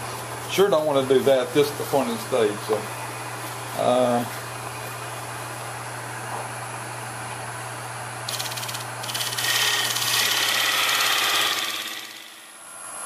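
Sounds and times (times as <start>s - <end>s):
wood lathe motor humming: 8.3s - 12.8s.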